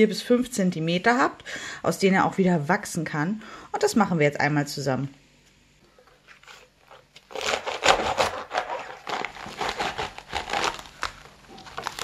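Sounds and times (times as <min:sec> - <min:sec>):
knife sawing through crunching lettuce: 0:06.1 - 0:12.0.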